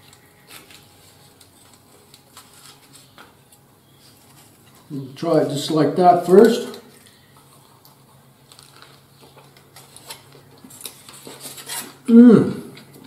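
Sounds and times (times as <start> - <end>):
food handled on foil wrapper: 0.0 - 4.9, 6.4 - 12.1
faint steady hum: 0.0 - 13.0
man talking: 4.9 - 6.9, 12.1 - 12.8.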